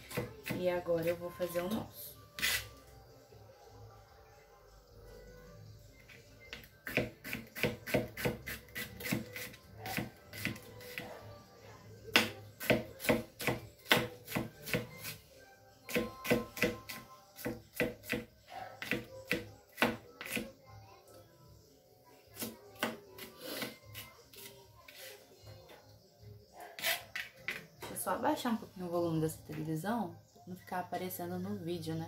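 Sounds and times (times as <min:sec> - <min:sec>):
knife chopping on plastic cutting board: 0:00.0 - 0:00.6, 0:06.5 - 0:11.0, 0:12.1 - 0:15.1, 0:15.9 - 0:20.5.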